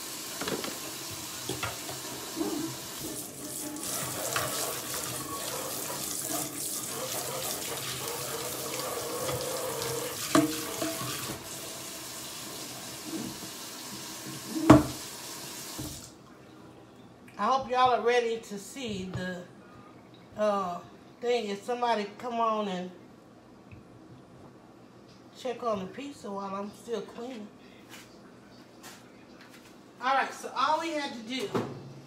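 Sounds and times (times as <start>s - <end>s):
faucet running into a sink: 0.0s - 16.1s.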